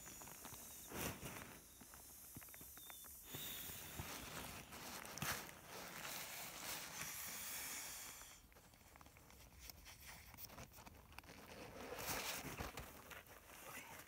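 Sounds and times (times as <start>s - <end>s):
nylon fabric rustling: 3.8s - 7.0s.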